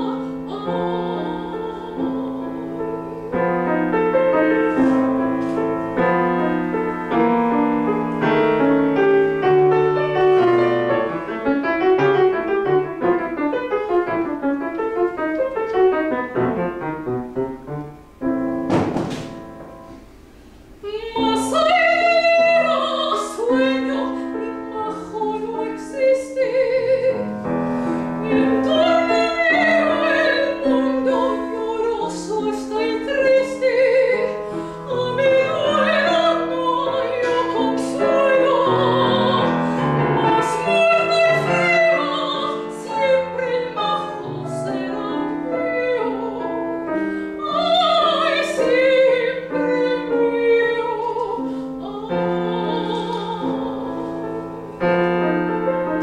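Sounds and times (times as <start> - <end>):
woman singing operatically: 0.0 - 3.0, 20.8 - 27.3, 28.2 - 54.1
grand piano playing: 0.0 - 56.0.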